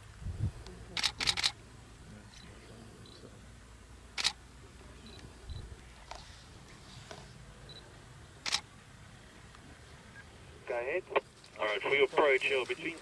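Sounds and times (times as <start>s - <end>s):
camera shutter clicks: 1.0s - 1.6s, 4.2s - 4.4s, 8.4s - 8.7s.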